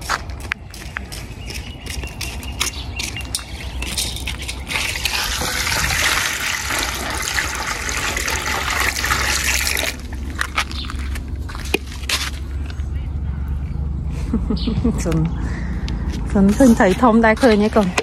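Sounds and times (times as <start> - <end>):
water rushing and splashing: 4.4 - 10.3.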